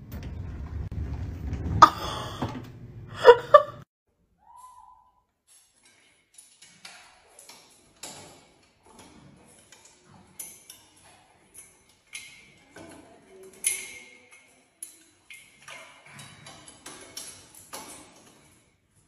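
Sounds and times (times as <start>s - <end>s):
metal baby gate rattling: 5.5s - 18.8s.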